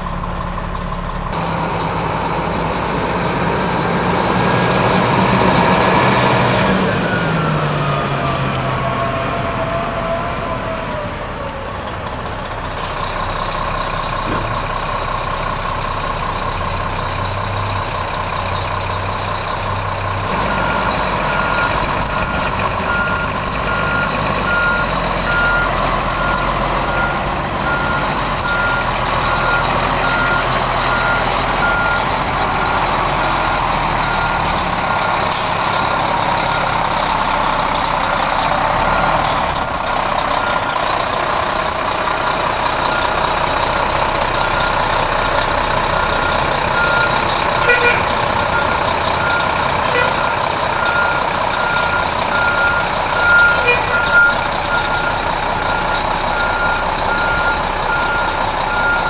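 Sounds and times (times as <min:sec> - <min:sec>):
diesel engine running: 0:00.0 - 0:59.0
air brakes hissing: 0:35.2 - 0:36.7, 0:57.2 - 0:57.8
backup alarm beeping: 0:48.5 - 0:59.0.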